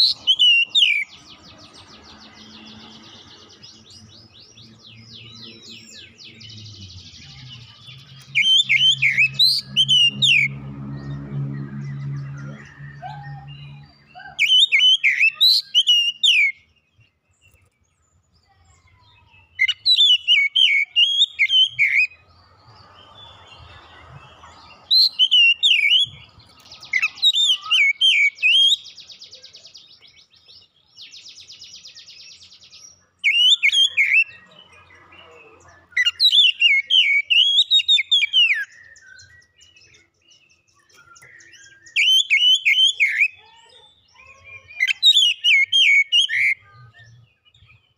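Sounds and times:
bird singing whistled phrases: 7.9s - 10.5s, 12.6s - 16.7s, 19.0s - 22.2s, 24.9s - 26.3s, 26.9s - 29.6s, 31.0s - 34.5s, 36.0s - 43.4s, 44.2s - 47.8s.

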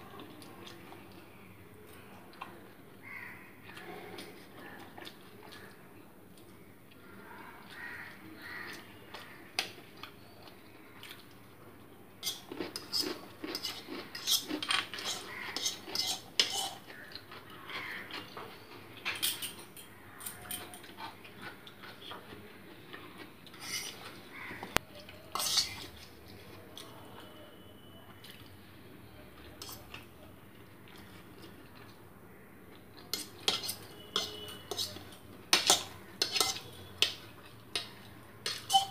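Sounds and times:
metal spoon clinking on plate: 12.2s - 16.8s, 19.1s - 20.9s, 33.1s - 38.9s.

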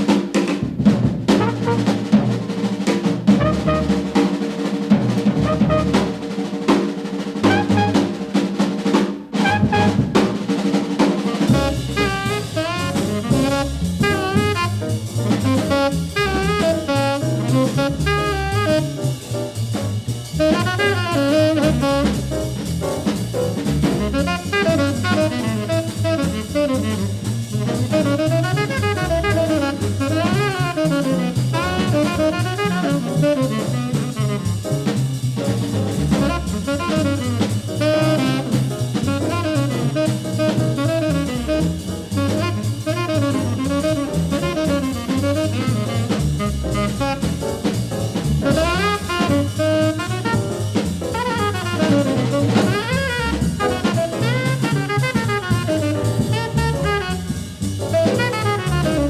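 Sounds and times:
bass: 0.0s - 59.0s
drum kit: 0.0s - 59.0s
saxophone melody: 1.4s - 2.0s, 3.4s - 4.1s, 5.4s - 6.2s, 7.4s - 8.2s, 9.4s - 10.2s, 11.4s - 19.2s, 20.4s - 22.3s, 24.0s - 27.2s, 27.8s - 34.6s, 36.2s - 47.4s, 48.4s - 59.0s.

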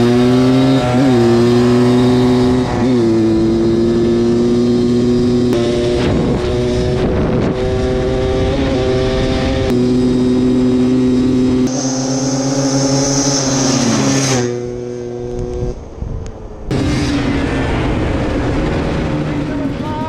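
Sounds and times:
two-stroke atv engines revving: 0.0s - 15.8s.

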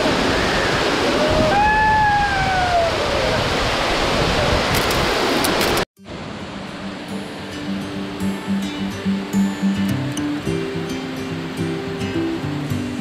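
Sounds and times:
person whooping: 1.1s - 3.4s
music: 6.6s - 13.0s.

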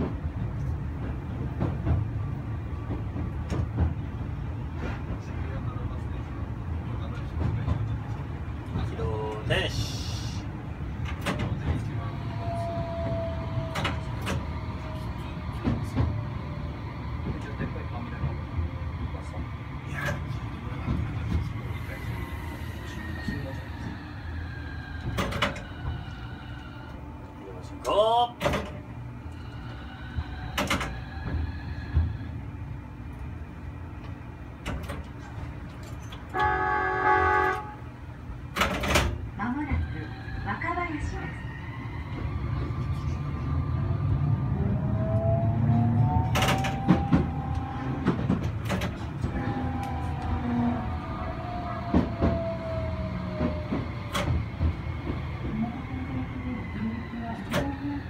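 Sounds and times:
tram rumbling on track: 0.0s - 58.0s
tram horn toot: 36.3s - 38.0s, 49.2s - 54.4s.

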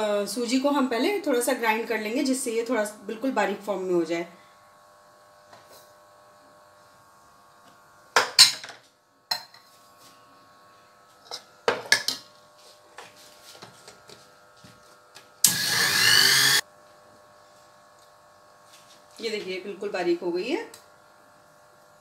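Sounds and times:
mixer grinder grinding: 11.1s - 16.7s.

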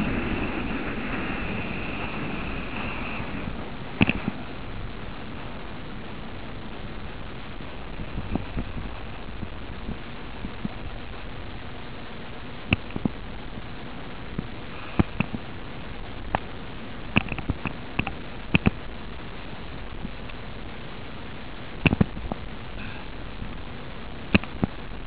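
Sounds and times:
skis hissing on snow: 0.0s - 5.7s, 14.5s - 16.0s, 22.6s - 23.4s
sharp clicks and knocks: 17.1s - 18.8s, 21.8s - 22.4s, 24.3s - 24.8s.

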